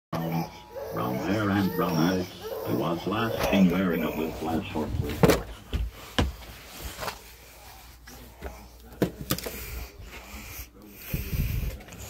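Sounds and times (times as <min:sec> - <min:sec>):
rustling: 0:04.4 - 0:08.6.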